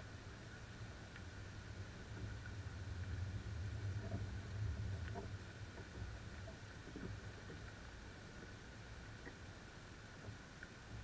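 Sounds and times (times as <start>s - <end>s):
wind rumble on microphone: 0.0s - 8.4s.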